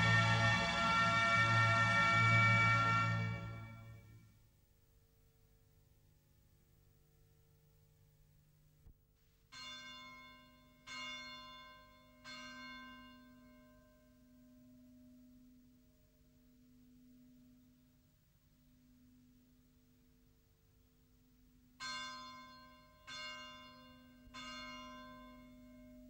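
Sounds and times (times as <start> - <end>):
church bell ringing: 0.0 - 4.1, 9.5 - 14.4, 21.8 - 26.0
deep hum: 0.0 - 4.1.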